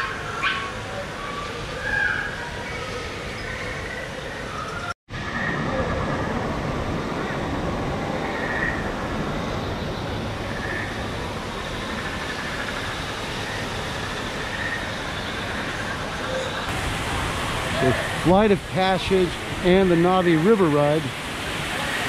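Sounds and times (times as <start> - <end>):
waterfall rushing into pond: 5.1 - 22.0.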